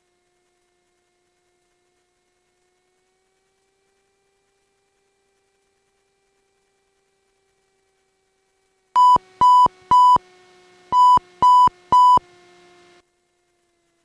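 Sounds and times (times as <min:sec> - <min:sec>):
faint steady hum: 0:07.5 - 0:13.7
short electronic beeps: 0:09.0 - 0:10.2, 0:10.9 - 0:12.2.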